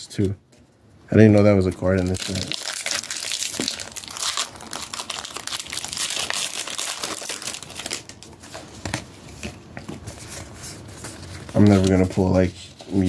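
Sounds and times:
foil wrapper crinkling: 1.9s - 8.3s.

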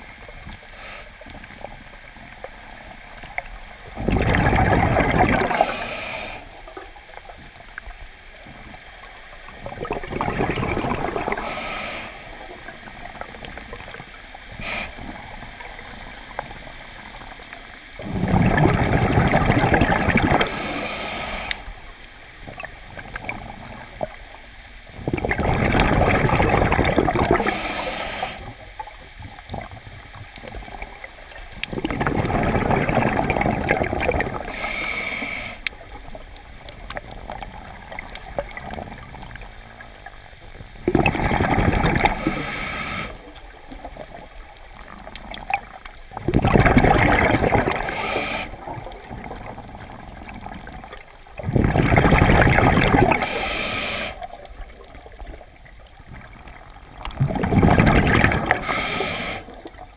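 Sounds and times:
hissing regulator inhalation: 0.7s - 1.4s, 5.4s - 6.6s, 11.2s - 12.4s, 14.6s - 15.2s, 20.4s - 21.7s, 27.3s - 28.6s, 34.4s - 35.7s, 42.0s - 43.2s, 47.7s - 48.7s, 53.1s - 54.6s, 58.6s - 59.6s
bubbling underwater exhalations: 3.9s - 5.9s, 9.5s - 11.7s, 18.0s - 20.9s, 25.0s - 28.6s, 30.4s - 35.2s, 40.8s - 55.4s, 56.2s - 59.9s.

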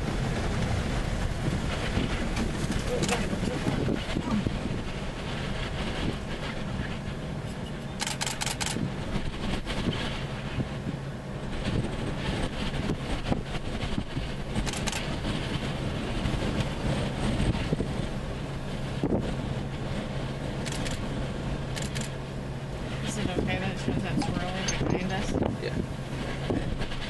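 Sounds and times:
wind noise on microphone: 0.0s - 27.0s
scattered clicks: 2.7s - 3.4s, 8.0s - 8.8s, 14.6s - 15.1s, 20.6s - 21.0s, 21.8s - 22.2s.

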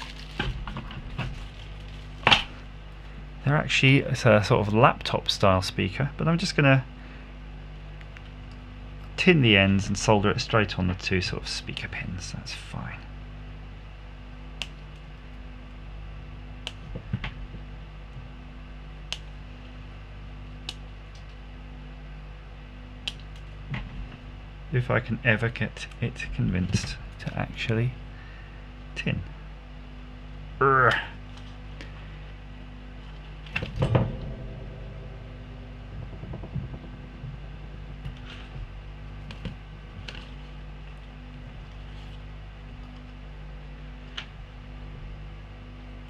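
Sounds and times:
low workbench hum: 0.0s - 46.0s
soft knock: 33.8s - 38.8s.

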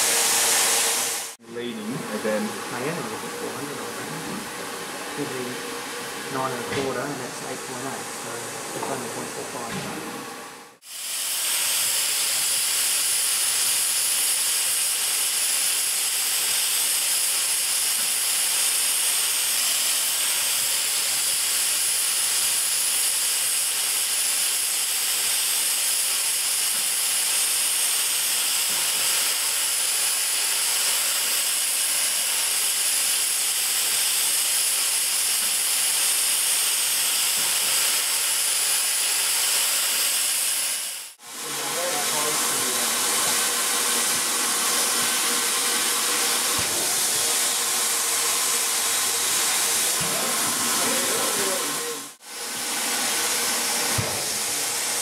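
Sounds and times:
steam hissing from locomotive: 0.0s - 55.0s.

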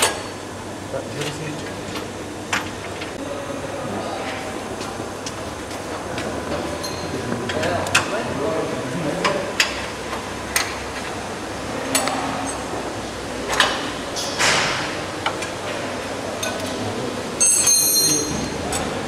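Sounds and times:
workshop noise: 0.0s - 19.0s
metal tool clinking on metal: 17.4s - 18.5s.

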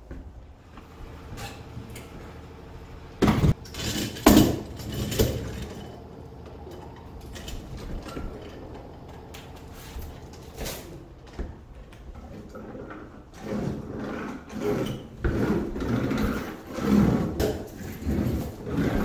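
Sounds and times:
hand roller rubbing on roofing sheet: 12.2s - 19.0s.

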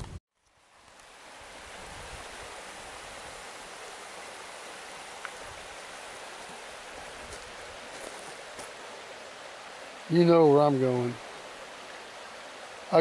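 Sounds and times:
faint tick: 0.4s - 1.1s
creek water rushing: 0.4s - 13.0s.

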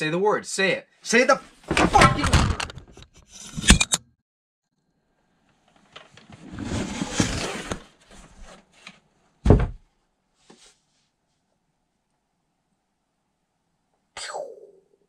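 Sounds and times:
loud thump: 9.4s - 9.8s.

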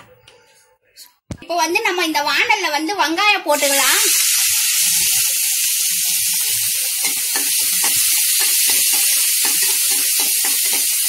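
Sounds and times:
onions sizzling in hot oil: 3.6s - 11.0s.

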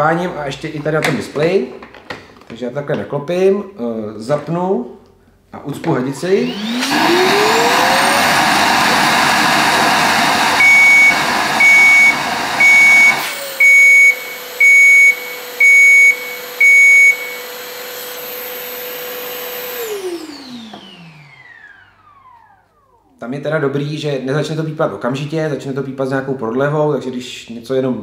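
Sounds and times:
vacuum cleaner motor running: 6.2s - 23.2s
alarm beeping: 10.5s - 17.5s.

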